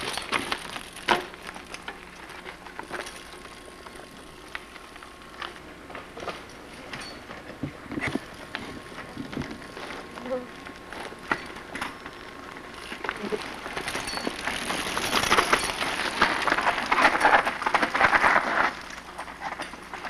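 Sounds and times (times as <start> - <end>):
bike tyres crunching over rocks: 0.0 - 20.0.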